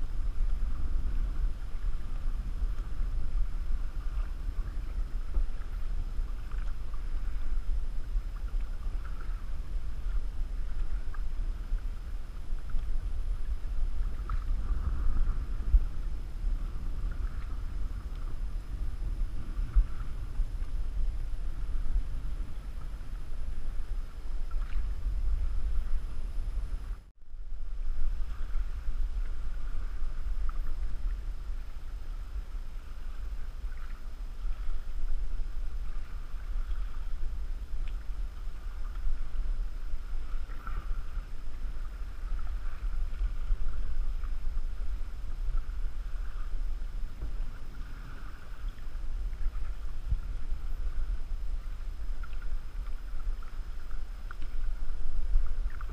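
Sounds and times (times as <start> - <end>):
wind buffeting microphone: 0.0 - 55.9
water splashing against canoe: 0.1 - 26.1.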